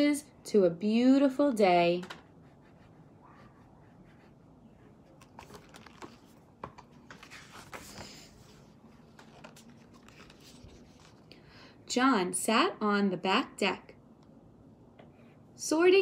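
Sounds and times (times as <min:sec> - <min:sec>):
book pages turning: 0:05.1 - 0:11.3.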